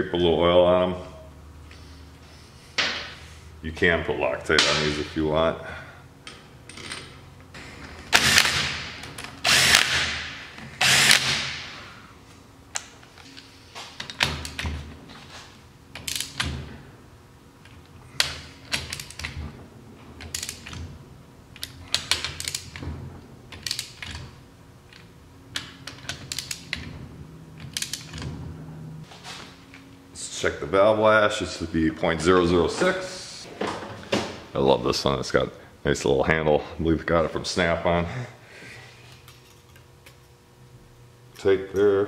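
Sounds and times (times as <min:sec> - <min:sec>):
hand ratchet clicking: 0:25.6 - 0:26.9.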